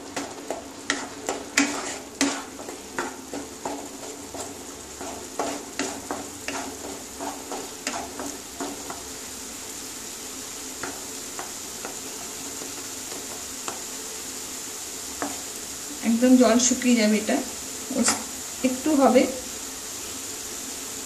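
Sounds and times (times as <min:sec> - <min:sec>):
spatula scraping a pan: 0:00.0 - 0:09.8, 0:10.5 - 0:14.0, 0:15.0 - 0:15.6
paste sizzling: 0:00.0 - 0:21.0.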